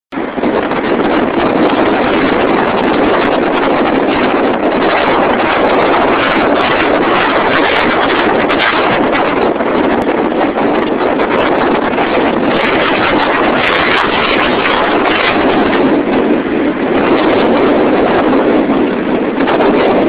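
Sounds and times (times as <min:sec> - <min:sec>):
wind roaring over microphone: 0:00.1 - 0:20.0.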